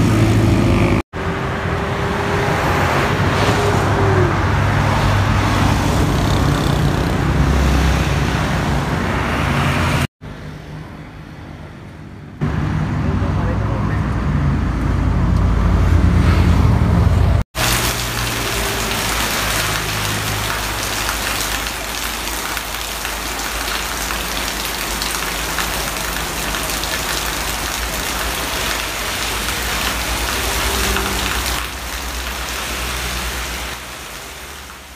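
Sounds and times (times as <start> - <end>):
heavy rain on road: 17.6 - 34.9.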